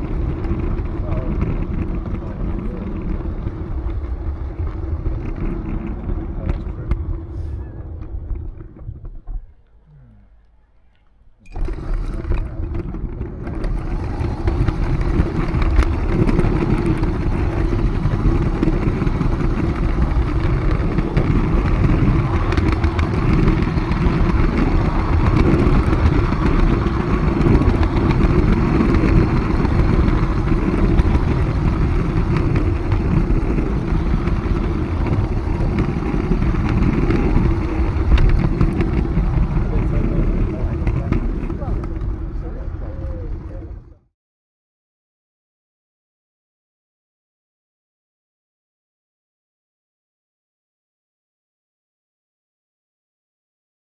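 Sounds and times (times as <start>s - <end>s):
model train wheels rumbling on track: 0.0s - 9.4s, 11.5s - 44.0s.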